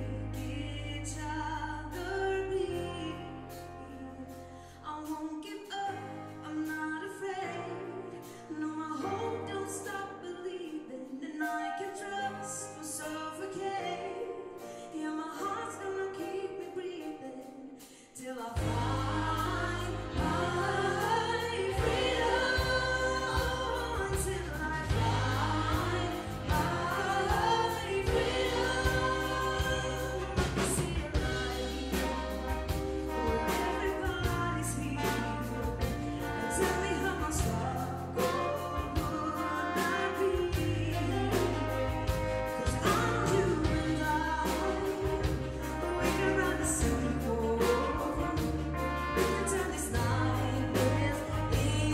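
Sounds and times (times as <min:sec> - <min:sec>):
bass line: 0:00.0 - 0:04.5, 0:18.6 - 0:51.9
woman singing lead: 0:00.0 - 0:51.9
backing singers: 0:18.5 - 0:51.9
big band playing: 0:18.5 - 0:51.9.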